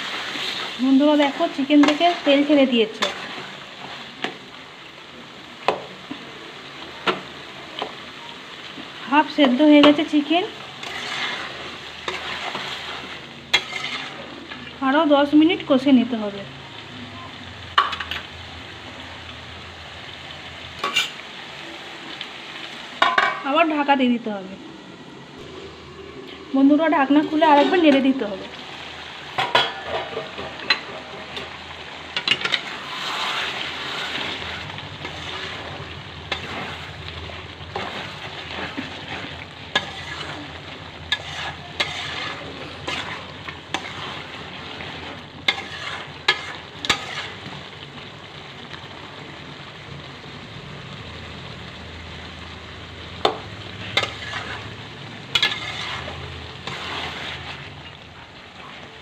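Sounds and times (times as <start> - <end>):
curry sizzling in a pot: 0.0 - 59.0
metal ladle scraping a pot: 10.8 - 14.3, 20.8 - 21.2, 32.2 - 37.0, 37.7 - 47.5, 53.8 - 54.7, 55.3 - 57.8.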